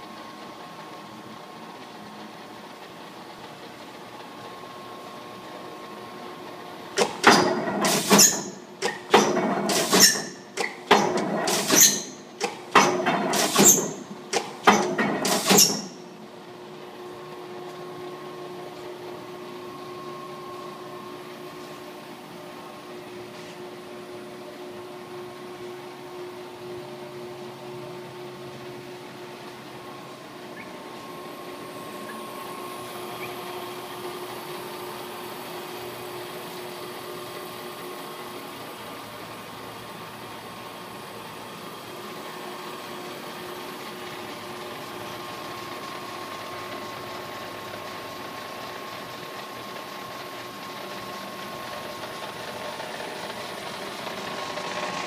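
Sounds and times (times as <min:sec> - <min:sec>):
punch press motor hum: 0:04.2 - 0:48.4.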